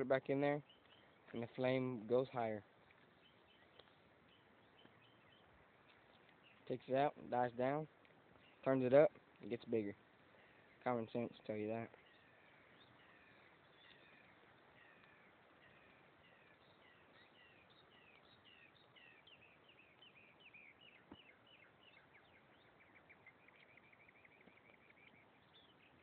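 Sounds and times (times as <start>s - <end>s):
bird chirping and trilling: 3.1s - 7.8s, 10.4s - 26.0s.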